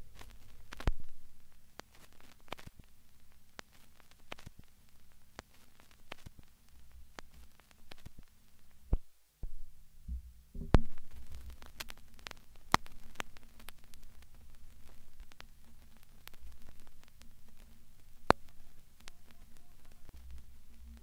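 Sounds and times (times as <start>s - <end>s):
crackling static clicks: 0.0s - 21.0s
low electrical hum: 0.0s - 21.0s
thumps: 8.9s - 21.0s.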